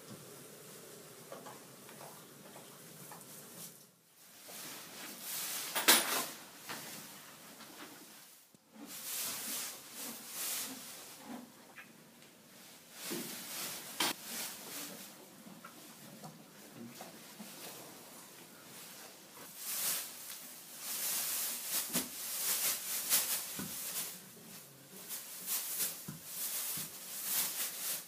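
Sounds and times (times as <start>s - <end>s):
straw bedding rustling: 18.8s - 28.0s.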